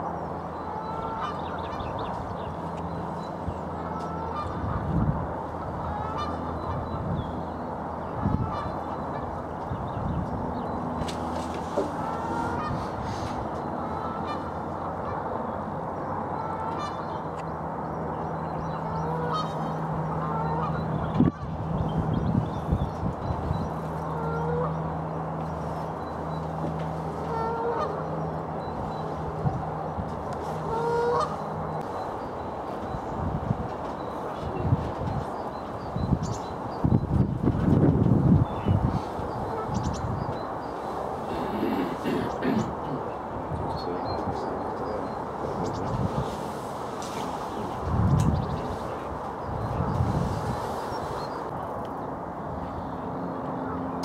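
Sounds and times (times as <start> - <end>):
geese honking: 0.0 - 2.3, 3.1 - 7.1, 8.0 - 9.5, 11.4 - 17.4, 18.6 - 21.6, 23.5 - 24.9, 25.6 - 32.2, 39.2 - 40.0
wind and water hiss: 0.0 - 53.3.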